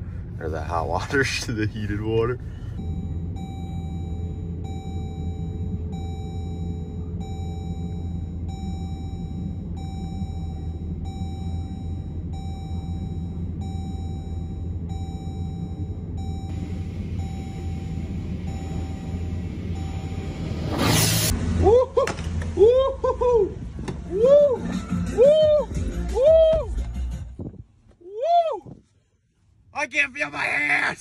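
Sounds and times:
car engine idling: 0:00.0 - 0:24.3
car warning chime: 0:01.9 - 0:21.3.

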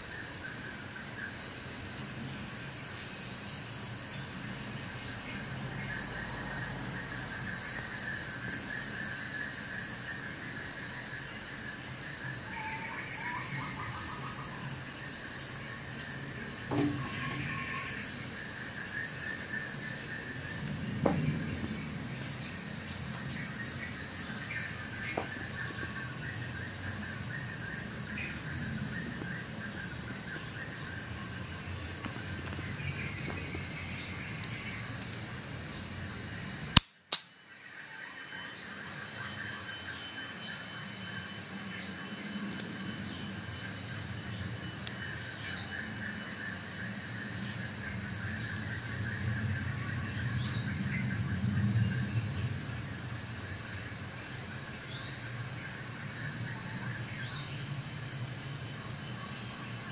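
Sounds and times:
insects chirping in trills: 0:00.0 - 0:59.9
short knocks: 0:16.7 - 0:17.5.

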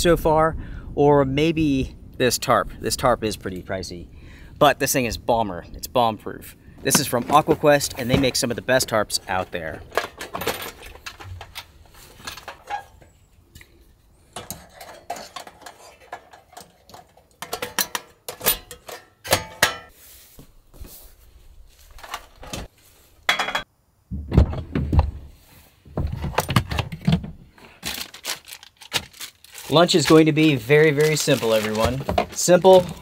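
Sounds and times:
camp cooking gear clinking: 0:06.8 - 0:20.0, 0:21.9 - 0:23.7, 0:27.9 - 0:33.0
heavy thumps: 0:23.4 - 0:26.3.

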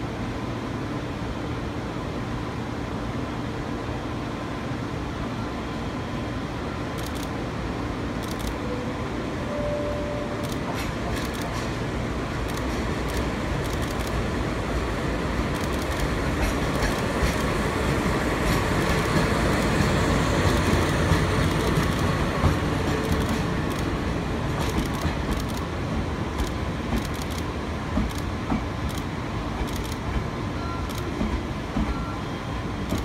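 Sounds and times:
diesel locomotive passing: 0:00.0 - 0:33.0
train wheels clicking over rail joints: 0:10.4 - 0:14.3, 0:15.4 - 0:32.1.

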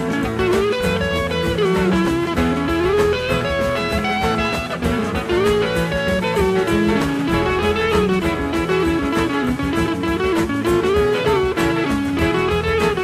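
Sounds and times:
guitar instrumental melody: 0:00.0 - 0:13.0
steady drum beat: 0:00.0 - 0:13.0.

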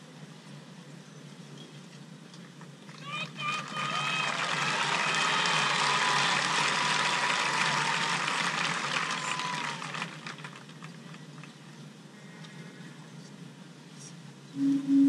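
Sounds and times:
stadium crowd cheering and applauding: 0:02.9 - 0:11.6.

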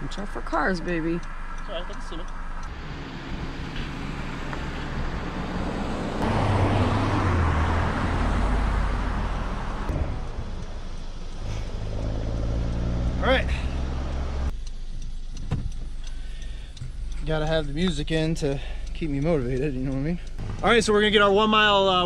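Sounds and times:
low steady rumble: 0:00.0 - 0:06.2, 0:08.9 - 0:12.3, 0:13.2 - 0:22.0
car driving past: 0:01.2 - 0:14.5.

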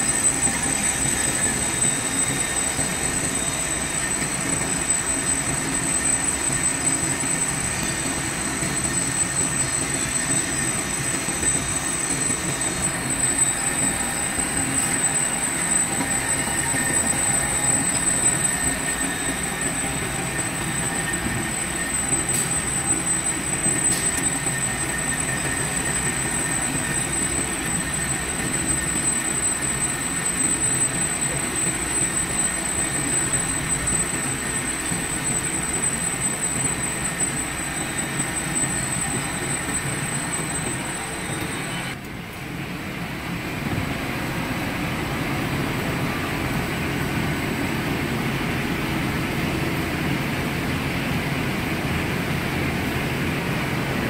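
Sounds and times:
lathe running: 0:00.0 - 0:42.0
thin high whine: 0:00.0 - 0:54.0.

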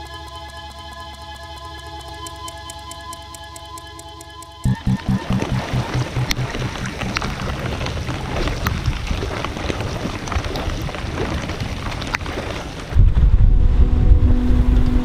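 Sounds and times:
raindrops ticking on kayak: 0:02.2 - 0:13.0
rain hissing on water: 0:05.1 - 0:13.0.

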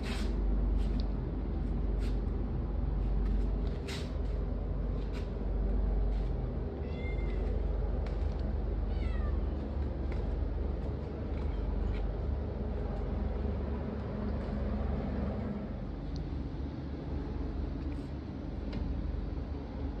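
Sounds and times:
steady low rumble: 0:00.0 - 0:20.0
cat mewing: 0:06.8 - 0:07.6, 0:08.9 - 0:09.6.

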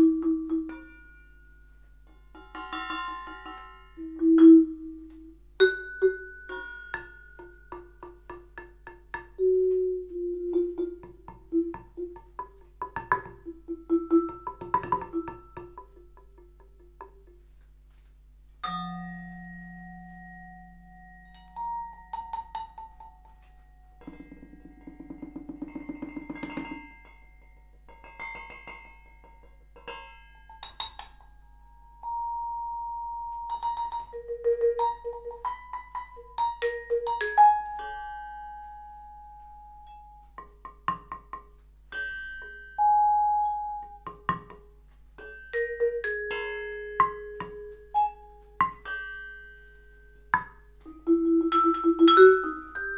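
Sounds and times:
vibraphone playing: 0:00.0 - 0:17.4, 0:18.6 - 0:28.4, 0:30.0 - 0:52.9.

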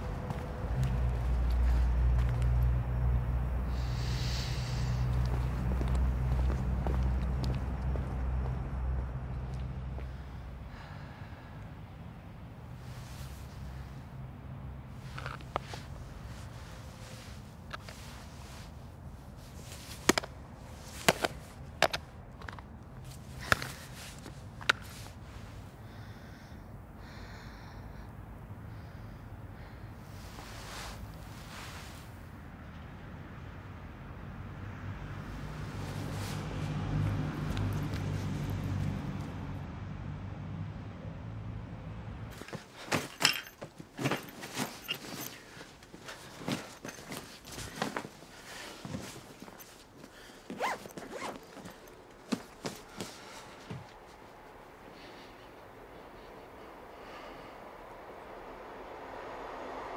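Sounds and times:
high heels clicking on pavement: 0:00.0 - 0:02.8, 0:05.1 - 0:10.1
clothes and bag rustling: 0:12.8 - 0:14.0, 0:14.8 - 0:25.7, 0:30.0 - 0:32.3, 0:35.2 - 0:39.3, 0:42.3 - 0:55.5.

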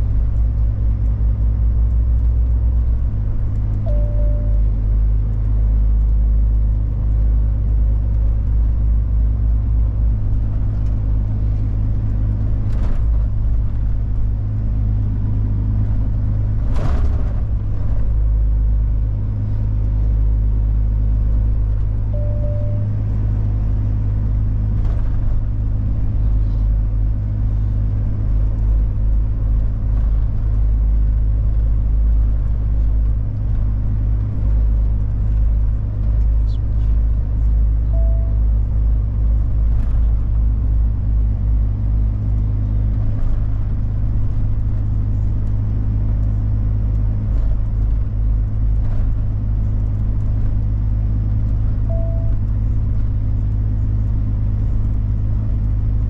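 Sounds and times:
truck engine and road drone: 0:00.0 - 0:56.0
short beep: 0:03.9 - 0:04.8, 0:22.1 - 0:23.0, 0:37.9 - 0:38.5, 0:51.9 - 0:52.4.

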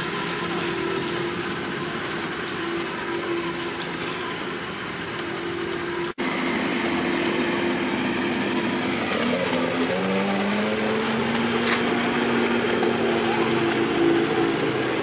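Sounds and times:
tank engine running: 0:00.0 - 0:15.0.

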